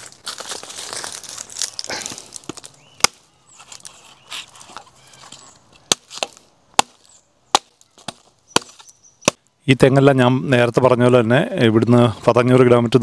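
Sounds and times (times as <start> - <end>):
blade chopping coconut husk: 2.4 - 3.3, 5.8 - 9.4.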